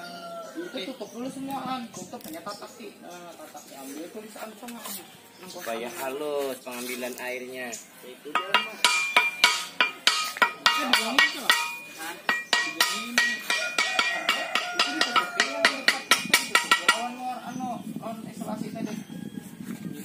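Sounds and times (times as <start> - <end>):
hammer striking metal blade: 8.4 - 17.2.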